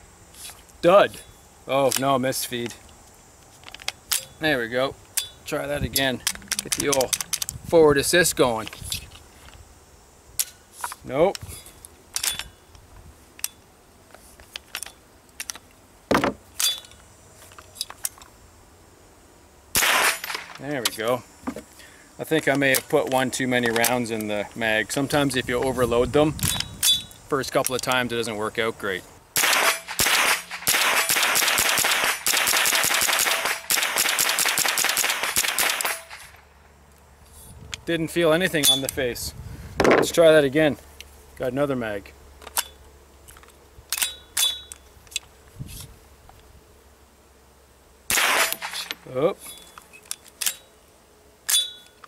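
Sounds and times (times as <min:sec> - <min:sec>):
rifle action clicking and clacking: 0:06.2 - 0:07.5
rapid semi-automatic rifle fire: 0:19.8 - 0:20.5, 0:29.4 - 0:36.4, 0:48.1 - 0:48.9.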